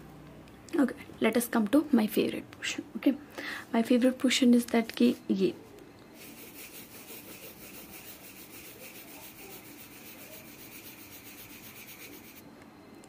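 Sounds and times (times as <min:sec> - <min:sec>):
pencil scratching on paper: 0:06.2 - 0:12.4.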